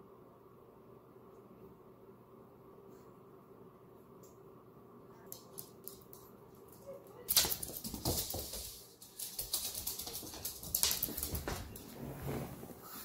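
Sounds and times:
dog claws ticking on floor: 0:05.3 - 0:11.9
dog scampering across wooden floor: 0:06.7 - 0:13.0.

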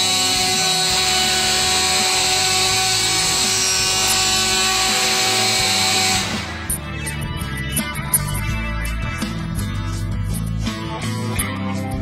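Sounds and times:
router motor whine cutting wood: 0:00.0 - 0:06.8.

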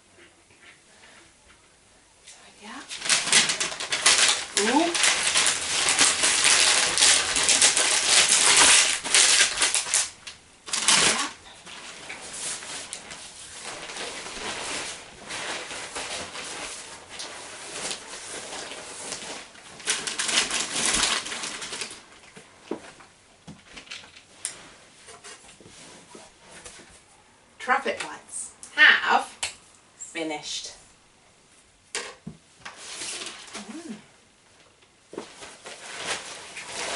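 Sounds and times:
sheets crinkling and rustling: 0:02.7 - 0:26.9, 0:32.6 - 0:34.0, 0:35.1 - 0:36.9.

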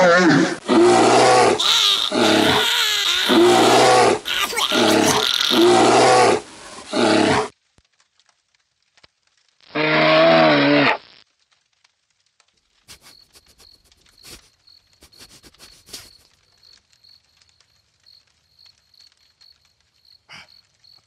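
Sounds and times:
cartoon bear growling: 0:00.0 - 0:07.5.

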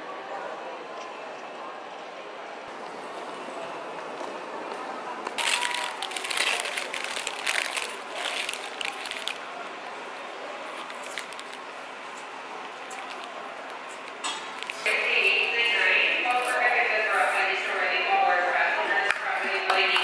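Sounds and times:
room noise: 0:02.7 - 0:20.0
paper wrapper crinkling: 0:05.4 - 0:09.5, 0:10.8 - 0:11.6, 0:14.0 - 0:14.9.

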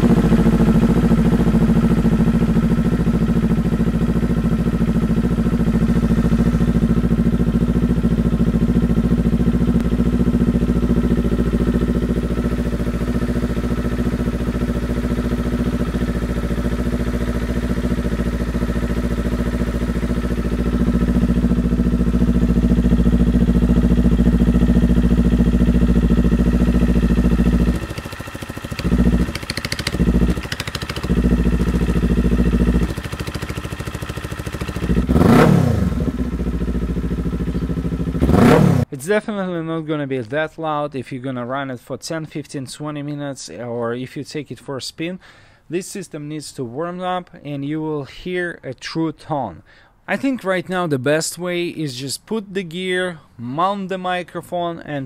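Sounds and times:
motorcycle engine idling and revving: 0:00.0 - 0:38.9.

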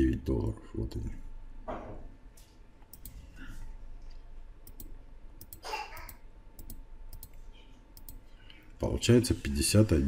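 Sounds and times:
computer mouse clicks: 0:02.8 - 0:03.3, 0:04.6 - 0:07.4, 0:08.0 - 0:08.3.

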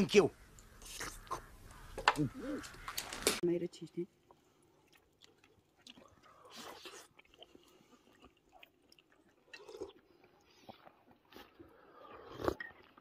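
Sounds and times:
soft chewing: 0:04.1 - 0:13.0
slurp: 0:04.8 - 0:13.0.

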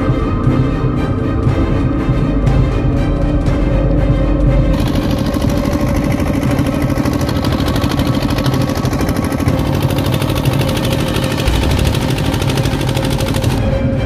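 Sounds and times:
water pump engine running: 0:00.0 - 0:14.0.

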